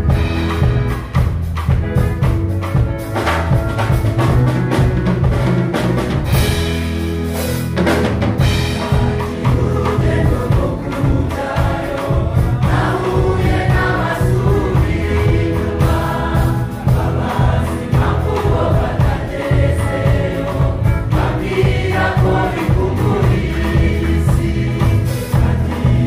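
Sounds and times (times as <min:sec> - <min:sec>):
instrumental accompaniment with bass: 0:00.0 - 0:26.0
gospel choir singing: 0:08.4 - 0:26.0.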